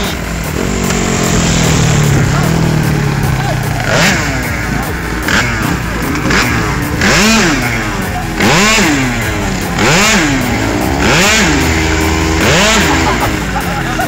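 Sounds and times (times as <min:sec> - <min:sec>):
scooter engine revving: 0:00.0 - 0:14.0.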